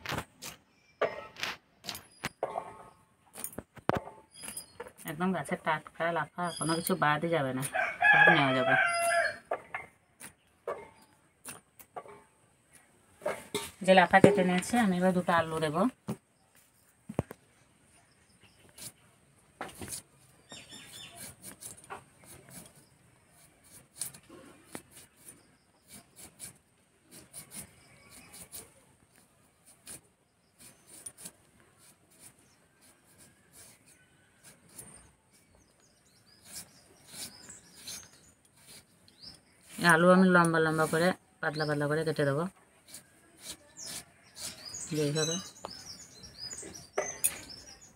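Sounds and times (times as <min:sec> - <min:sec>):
birds chirping: 0:04.0 - 0:12.9, 0:13.5 - 0:23.5, 0:27.2 - 0:47.9
blade scraping potato skin: 0:19.6 - 0:41.1, 0:42.0 - 0:47.6.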